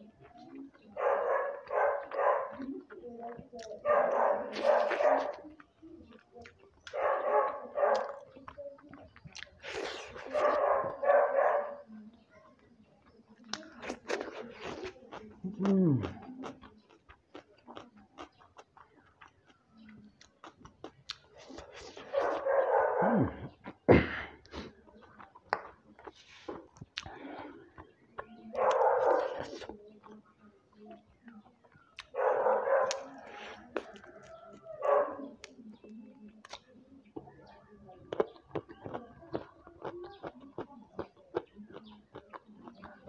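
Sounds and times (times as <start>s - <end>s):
chewing clicks: 0.0s - 43.0s
dog barking: 0.9s - 2.9s, 3.8s - 5.6s, 6.8s - 8.4s, 10.2s - 12.6s, 21.8s - 23.4s, 28.5s - 29.7s, 32.1s - 33.6s, 34.7s - 35.4s.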